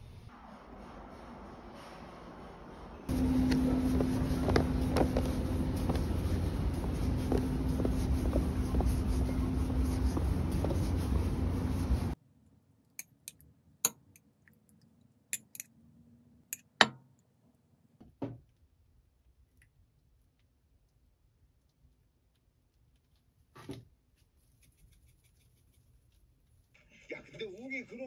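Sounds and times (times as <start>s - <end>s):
outdoor rumble: 0.0s - 12.2s
low hum: 0.0s - 12.5s.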